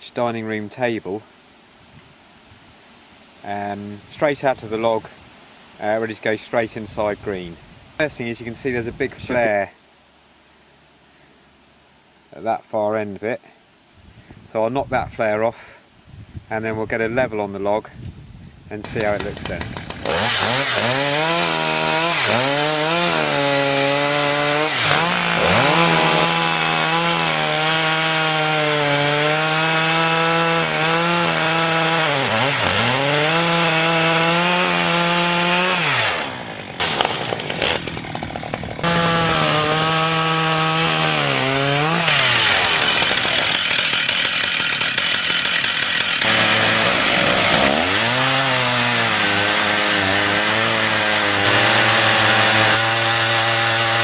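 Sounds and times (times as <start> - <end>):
chainsaw cutting log: 18.8 - 54.0
chainsaw ripping along log: 18.8 - 54.0.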